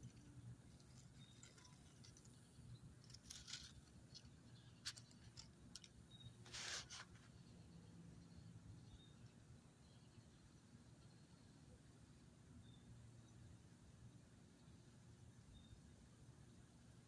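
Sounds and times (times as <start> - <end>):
faint rustles: 0.0 - 7.5.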